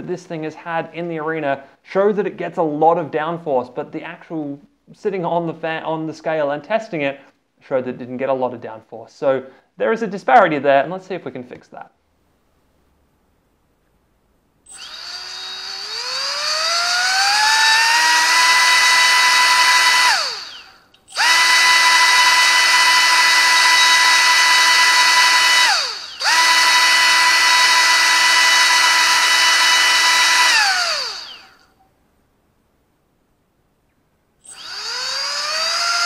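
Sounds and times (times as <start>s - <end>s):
electric motor fan whine: 14.7s - 31.6s, 34.4s - 36.0s.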